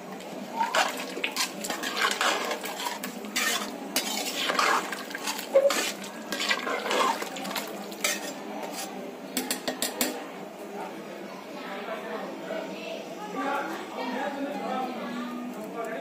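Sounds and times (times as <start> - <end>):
metal spatula scraping metal pot: 0.6 - 9.6.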